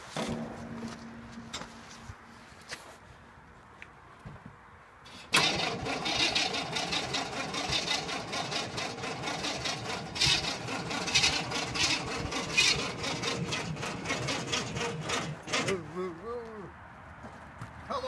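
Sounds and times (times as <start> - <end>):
truck engine running: 0.0 - 2.8, 5.3 - 15.8.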